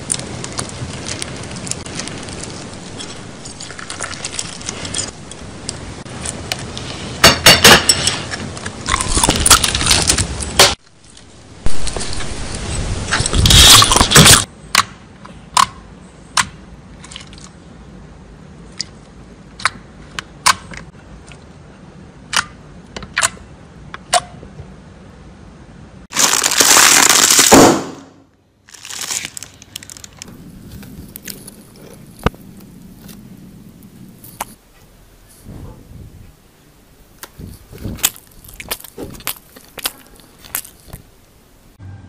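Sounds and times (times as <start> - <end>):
slime crunching: 26.1 - 27.6, 28.7 - 34.6, 37.2 - 41.4.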